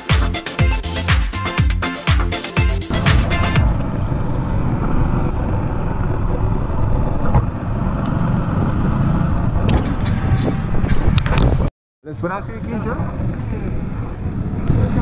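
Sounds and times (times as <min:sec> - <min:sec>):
motorcycle engine rumble: 0:02.9 - 0:11.7, 0:12.6 - 0:15.0.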